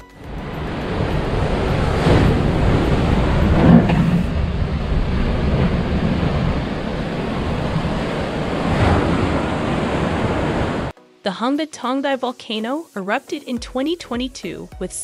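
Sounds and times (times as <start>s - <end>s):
rushing seawater and foam: 0.3s - 10.9s
waves crashing over sea wall: 0.3s - 10.9s.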